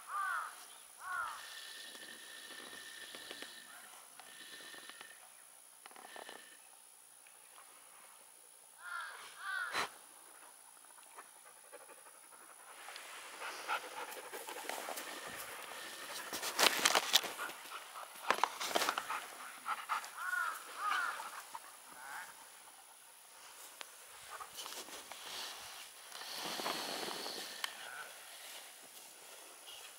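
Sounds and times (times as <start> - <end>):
dog panting: 11.1 - 23.2
rustling in grass: 12.7 - 22.3, 23.3 - 29.9.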